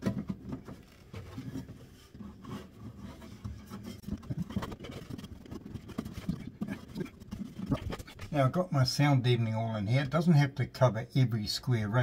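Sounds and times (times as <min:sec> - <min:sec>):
scraping and rustling mat: 0:00.6 - 0:08.1.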